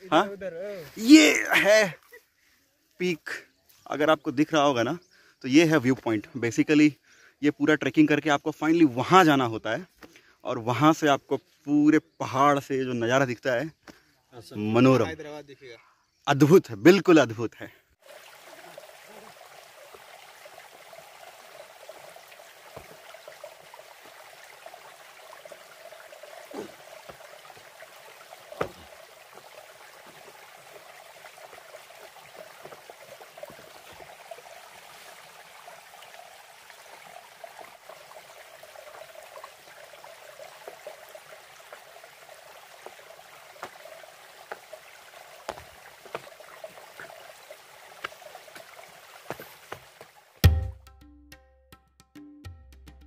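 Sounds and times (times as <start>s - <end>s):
running water: 16.4s - 50.8s.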